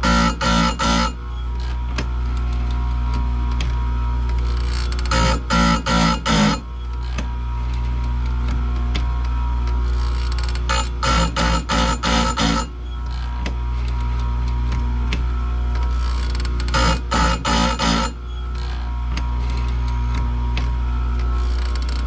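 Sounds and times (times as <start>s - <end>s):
grinder motor humming: 0.0s - 22.0s
grinding wheel on chain tooth: 9.8s - 14.0s, 15.7s - 20.0s, 21.2s - 22.0s.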